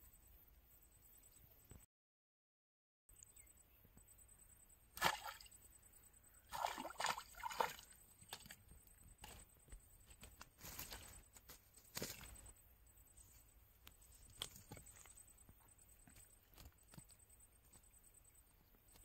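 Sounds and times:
fish splashing in water: 0:06.5 - 0:08.5.

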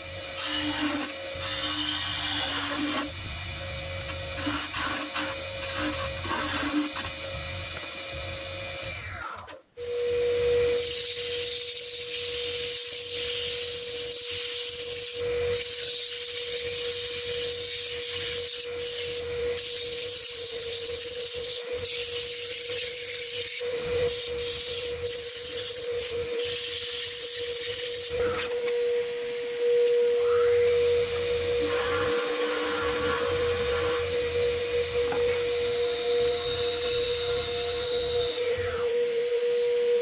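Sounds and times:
wood lathe humming: 0:00.0 - 0:09.2, 0:11.4 - 0:40.0
hand tool cutting spinning wood: 0:00.0 - 0:09.3
sandpaper hissing on spinning wood: 0:10.8 - 0:28.2, 0:35.8 - 0:38.3.

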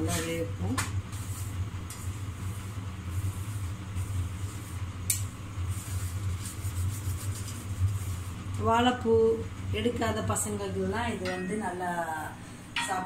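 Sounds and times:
spatula tapping and scraping: 0:00.0 - 0:02.2, 0:04.0 - 0:08.2, 0:11.2 - 0:11.8
steady low hum: 0:00.0 - 0:13.0.

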